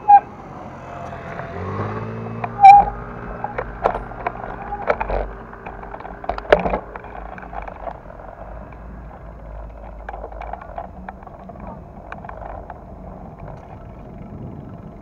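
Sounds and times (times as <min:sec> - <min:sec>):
low rumble: 0:00.0 - 0:15.0
clicks and knocks: 0:02.4 - 0:13.8.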